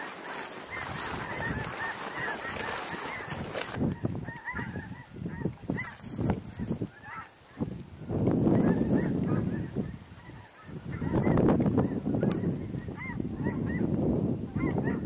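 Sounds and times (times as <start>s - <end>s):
footsteps crunching frozen grass: 0.0s - 4.0s, 5.7s - 9.8s
snow geese honking: 0.0s - 7.6s, 8.5s - 13.9s.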